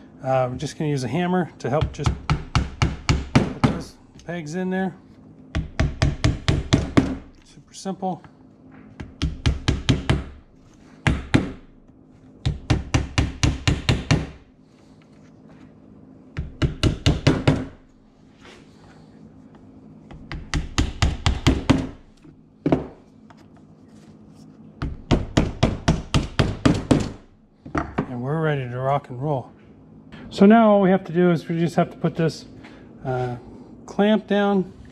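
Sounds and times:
hammer tapping pegs into wood: 0:01.7 - 0:03.8, 0:09.0 - 0:10.4, 0:12.4 - 0:14.4, 0:16.4 - 0:17.8, 0:20.1 - 0:22.0.

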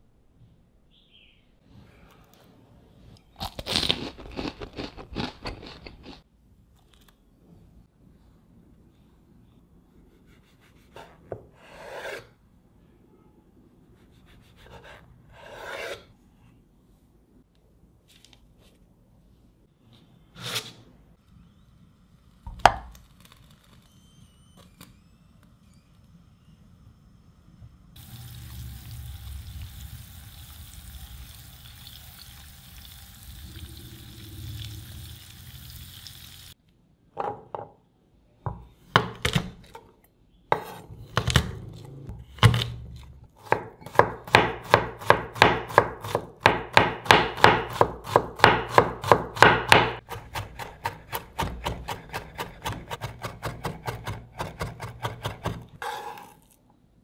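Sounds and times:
butter hissing in a pan: 0:28.0 - 0:36.6
knife chopping on a wooden board: 0:43.4 - 0:56.2.

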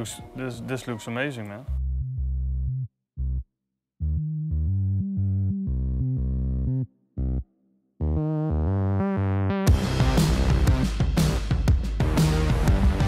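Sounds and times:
synthesizer background music: 0:04.0 - 0:13.0.

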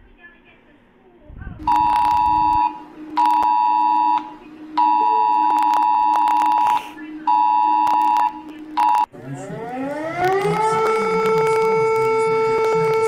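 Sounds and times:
low hum: 0:01.1 - 0:13.0
two-tone alert beeps: 0:01.6 - 0:09.1.

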